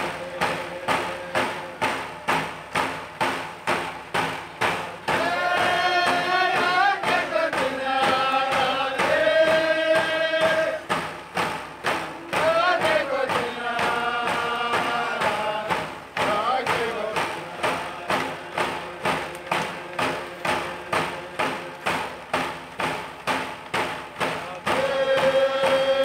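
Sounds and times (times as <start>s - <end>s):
group of men singing: 0.0s - 1.9s, 5.0s - 11.0s, 12.0s - 22.1s, 24.2s - 26.0s
hand drums beating: 0.0s - 26.0s.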